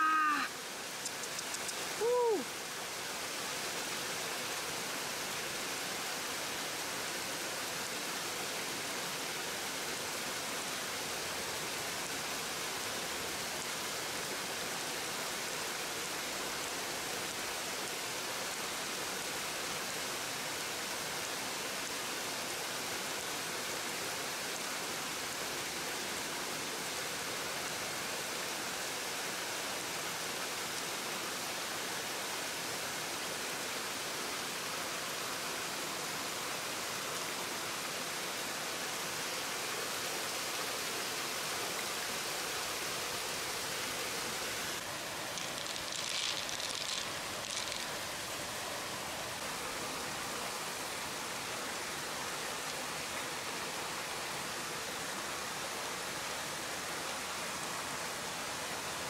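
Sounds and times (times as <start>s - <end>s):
person exclaiming: 0.0s - 0.6s, 2.0s - 2.5s
river water rushing: 0.0s - 59.0s.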